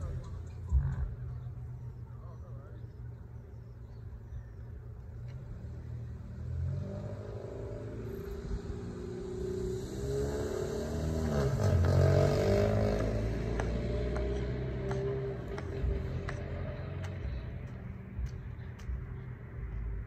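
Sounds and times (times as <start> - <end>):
vehicle engine passing: 5.0 - 20.0.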